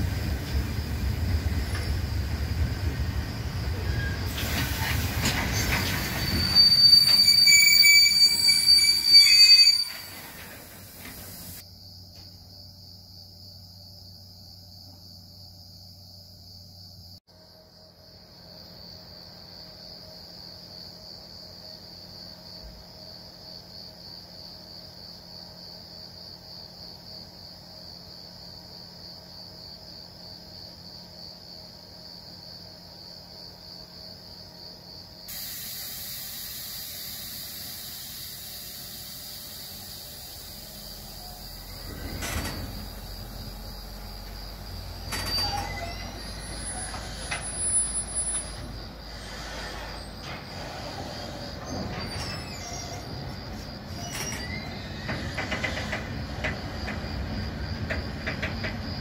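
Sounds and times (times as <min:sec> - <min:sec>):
freight train rumbling: 0:00.0 - 0:11.6, 0:35.3 - 0:59.0
train wagons clanking: 0:00.0 - 0:11.6, 0:40.2 - 0:59.0
crickets chirping: 0:00.0 - 0:59.0
train wheel squeal: 0:03.5 - 0:11.6, 0:35.3 - 0:43.8, 0:45.0 - 0:57.1
steady hiss: 0:35.2 - 0:44.9.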